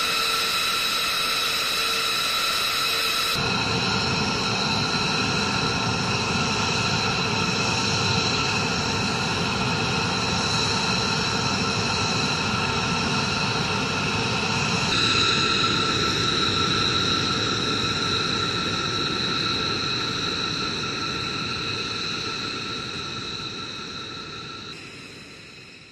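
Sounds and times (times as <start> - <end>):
jet engines idling: 0.0 - 25.9.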